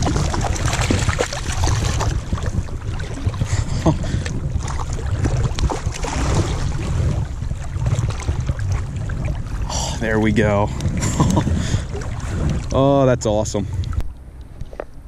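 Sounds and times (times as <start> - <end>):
fish splashing at water surface: 0.0 - 9.4
steady low rumble: 0.0 - 15.0.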